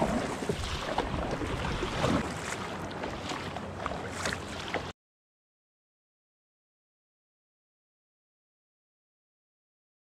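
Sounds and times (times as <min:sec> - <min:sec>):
kayak paddle splashing: 0:00.0 - 0:04.9
water lapping around kayak hull: 0:00.0 - 0:05.0.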